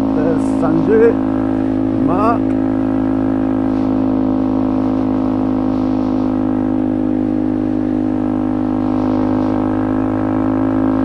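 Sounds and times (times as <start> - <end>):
motorcycle engine cruising: 0.0 - 11.0.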